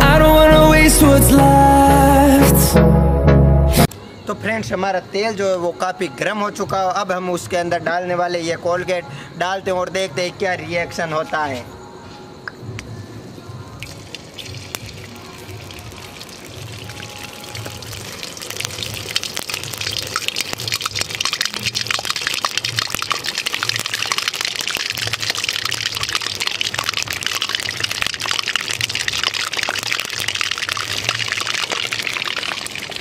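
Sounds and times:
background music with beat: 0:00.0 - 0:04.0
oil sizzling and crackling: 0:13.8 - 0:33.0.

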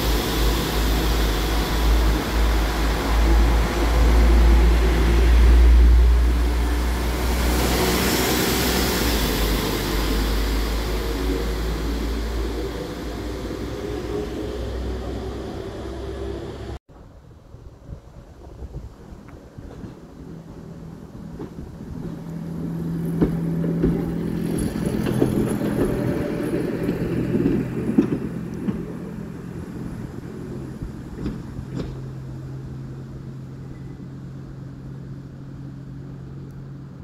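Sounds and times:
railcar engine hum: 0:00.0 - 0:37.0
wheels clicking over rail joints: 0:21.1 - 0:32.3.

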